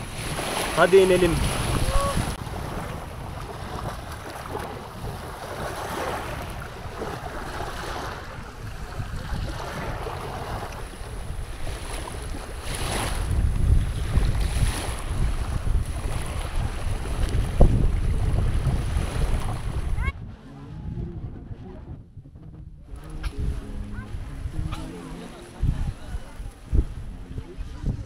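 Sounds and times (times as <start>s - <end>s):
small waves lapping: 0.0s - 20.1s
wind buffeting microphone: 0.0s - 28.0s.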